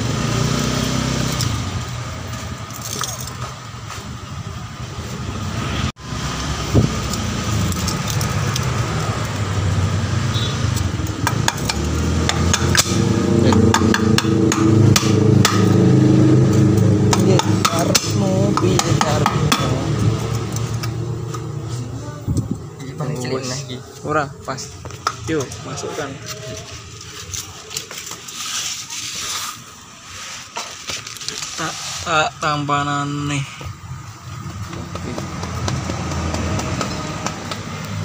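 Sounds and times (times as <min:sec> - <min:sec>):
metal tools clinking: 0:02.6 - 0:03.5.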